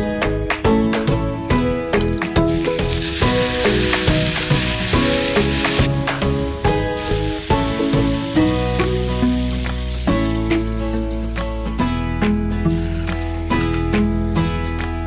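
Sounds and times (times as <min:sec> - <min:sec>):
liquid sizzling in a hot pan: 0:01.9 - 0:11.4.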